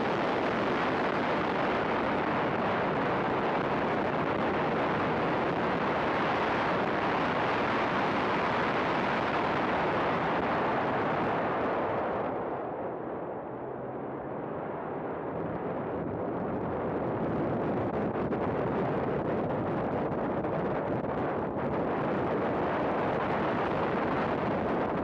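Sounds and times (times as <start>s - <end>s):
race car engine and wind rush: 0.0s - 25.0s.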